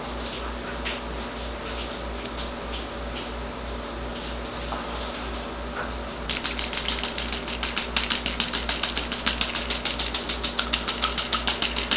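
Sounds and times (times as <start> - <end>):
rapid sharp clicks: 6.3 - 11.9.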